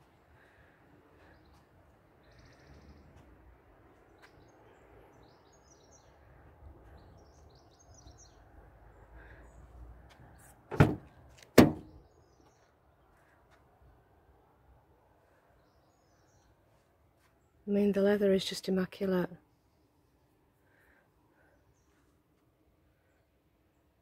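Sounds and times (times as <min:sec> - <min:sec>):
car door handle and latch clunks: 0:10.7 - 0:11.9.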